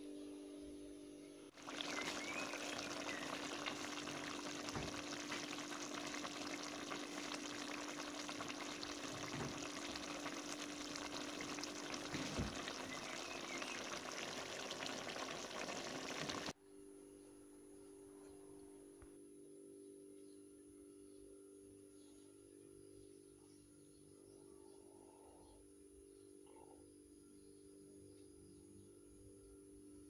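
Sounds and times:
sauce sizzling and bubbling: 1.5 - 16.6.

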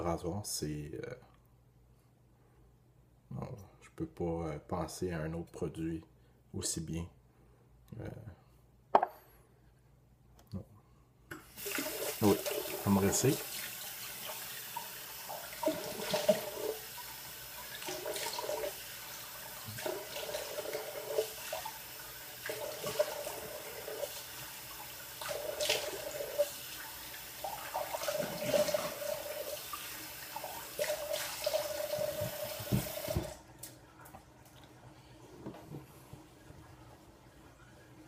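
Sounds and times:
water splashes: 11.6 - 33.4
tap running into a sink: 14.3 - 16.8, 30.8 - 33.4.

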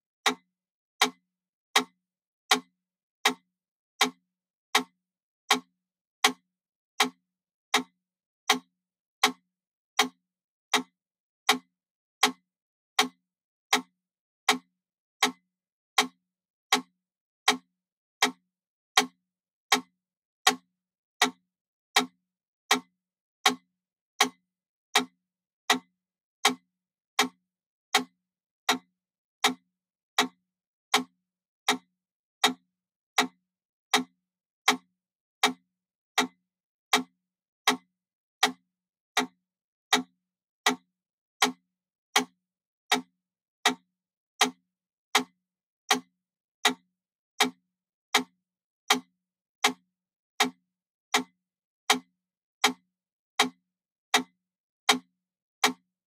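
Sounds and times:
metronome ticking: 34.7 - 35.6.

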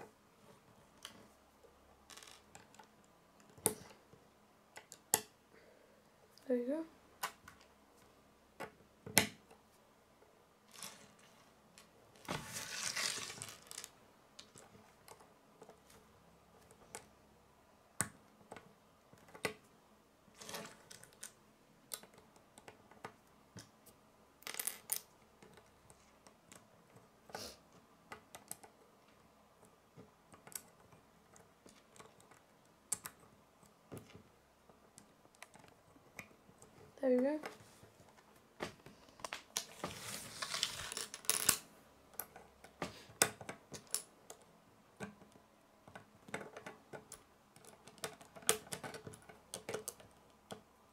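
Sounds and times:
plastic bricks clicking together: 2.1 - 4.0, 40.6 - 50.7
plastic pieces rattling: 10.7 - 14.6, 39.6 - 41.6.

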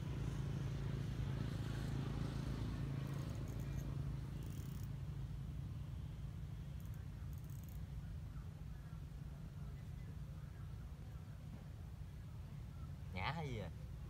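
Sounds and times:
distant motor hum: 0.0 - 14.0
faint high ticks: 3.1 - 4.9, 6.7 - 7.8.

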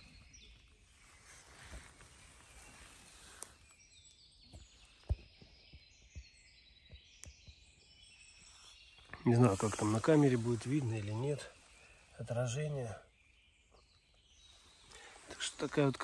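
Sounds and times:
distant birdsong: 0.0 - 16.0
soft hiss: 0.7 - 4.2, 8.4 - 12.6.

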